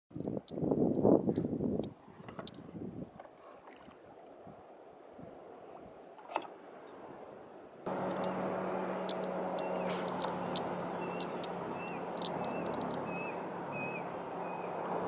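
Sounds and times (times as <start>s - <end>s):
small waves lapping around kayak: 0.9s - 15.0s
steady hum with low drone: 6.8s - 15.0s.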